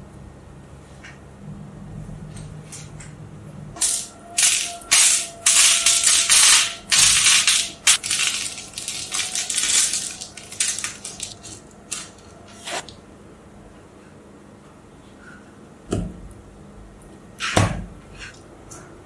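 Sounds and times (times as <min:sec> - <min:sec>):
pebbles rattling on magnet balls: 0:03.8 - 0:12.2.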